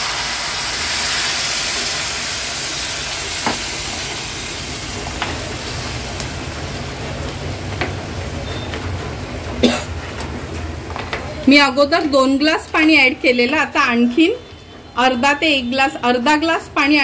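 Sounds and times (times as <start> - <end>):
water sizzling in hot pan: 0.0 - 9.6.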